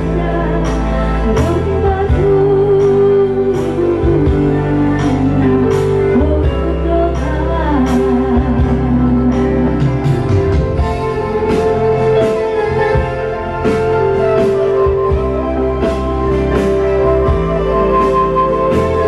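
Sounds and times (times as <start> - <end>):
woman singing into microphone: 0.0 - 10.1
electronic keyboard chords: 0.0 - 19.0.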